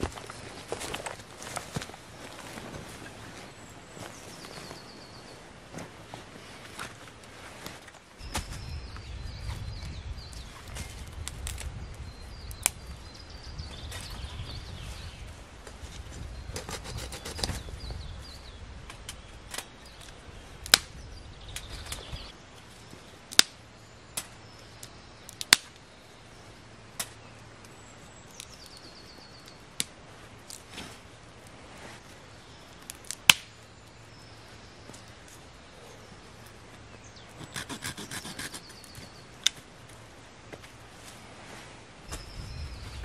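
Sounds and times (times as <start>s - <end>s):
knife cutting wooden stick: 16.6s - 17.6s, 37.4s - 38.9s.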